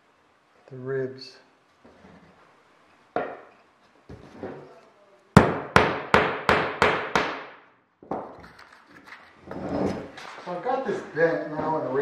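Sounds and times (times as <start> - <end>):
hammer tapping a nail: 5.4 - 8.2.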